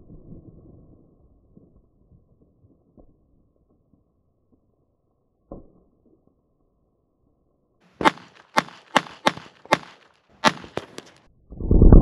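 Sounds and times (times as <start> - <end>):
pistol shots: 8.0 - 11.2.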